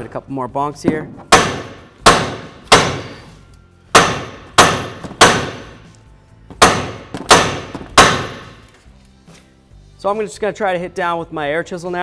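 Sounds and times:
hammer striking metal: 1.2 - 3.2, 3.9 - 5.8, 6.5 - 8.6.

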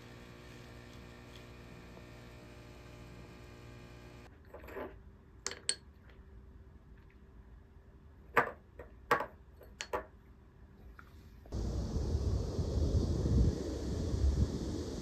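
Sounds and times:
steady outdoor rush: 11.5 - 15.0.

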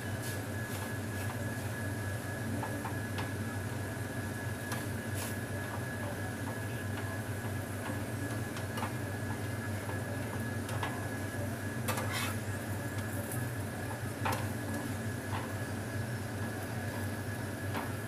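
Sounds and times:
metal spatula scraping frying pan: 12.0 - 12.4.

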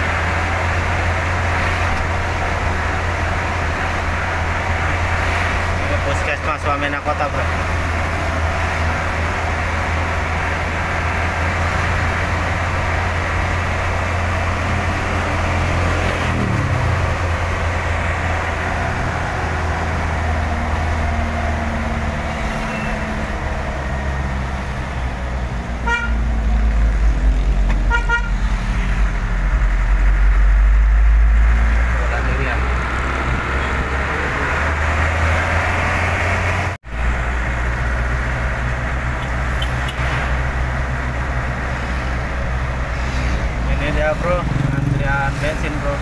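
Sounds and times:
truck engine drone: 0.0 - 46.0
vehicle horn short beeps: 25.9 - 26.2, 27.9 - 28.3, 39.2 - 40.0.

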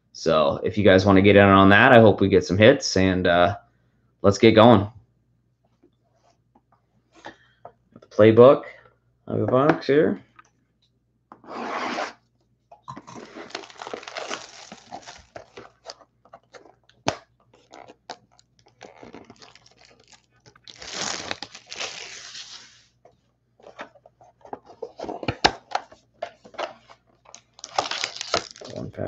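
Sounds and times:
plastic shrink wrap tearing: 13.2 - 15.7, 17.6 - 22.8, 27.3 - 29.0.

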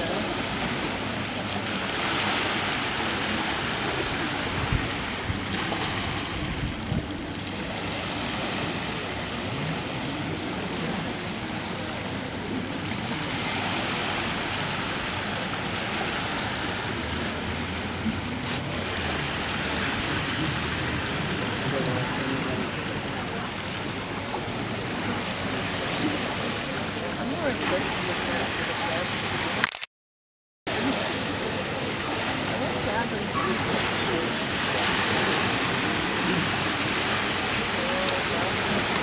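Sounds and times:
rushing outdoor noise: 0.0 - 29.9, 30.7 - 39.0.

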